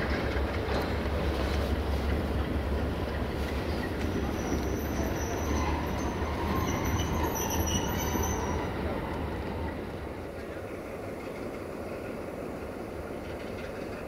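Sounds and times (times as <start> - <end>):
locomotive rumbling: 0.0 - 14.0
high metallic squeal: 4.3 - 8.7.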